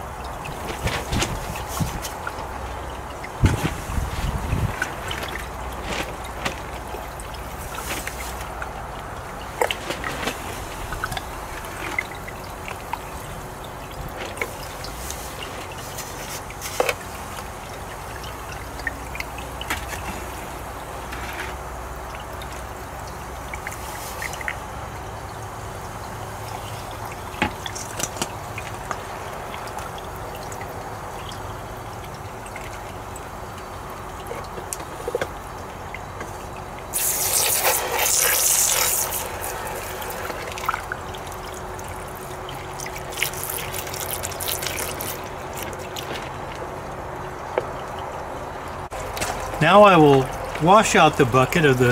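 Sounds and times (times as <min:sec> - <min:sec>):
hose spraying water: 0:00.0 - 0:30.0, 0:36.2 - 0:46.9
water pump hum: 0:00.0 - 0:51.9
water trickling: 0:00.0 - 0:51.9.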